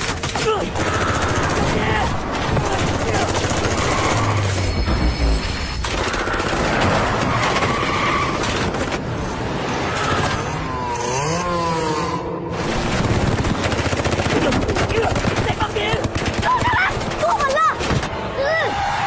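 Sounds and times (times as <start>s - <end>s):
rapid gunfire: 0.0s - 4.4s, 5.8s - 9.1s, 12.6s - 18.1s
vehicle engines driving hard: 6.6s - 13.4s.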